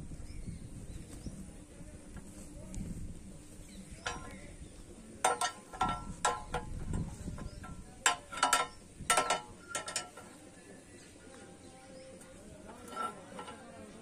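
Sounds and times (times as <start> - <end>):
metal rod clanking against jig: 4.0 - 4.4, 5.2 - 10.4, 12.7 - 14.0.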